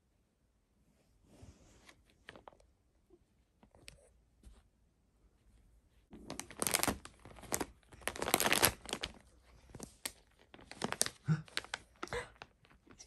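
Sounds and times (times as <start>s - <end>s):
plastic pouch crinkling: 6.1s - 13.0s.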